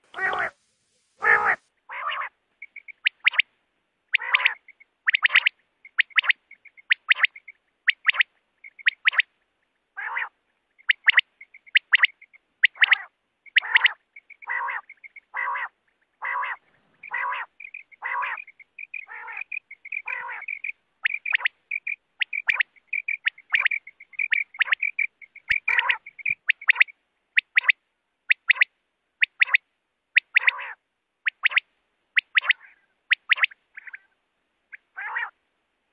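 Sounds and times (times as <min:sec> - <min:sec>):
quail rough low calls: 0:00.0 - 0:00.6, 0:01.2 - 0:03.4, 0:04.1 - 0:09.2, 0:10.0 - 0:26.9, 0:30.2 - 0:30.8, 0:32.2 - 0:35.4
quail sharp high calls: 0:00.0 - 0:00.6, 0:01.2 - 0:03.5, 0:04.1 - 0:09.4, 0:10.0 - 0:35.4.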